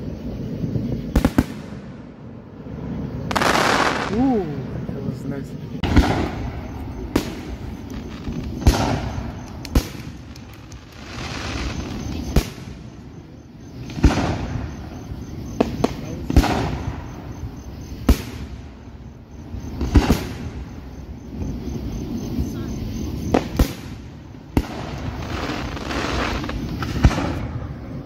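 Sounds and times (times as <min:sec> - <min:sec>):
fireworks bursting with sharp bangs: 0:00.3 - 0:28.0
lingering echo of bangs: 0:05.8 - 0:07.8.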